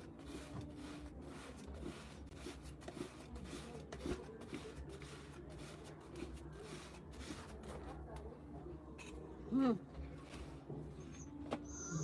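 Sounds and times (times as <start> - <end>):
flatbread scraping on a pan: 0.0 - 7.8.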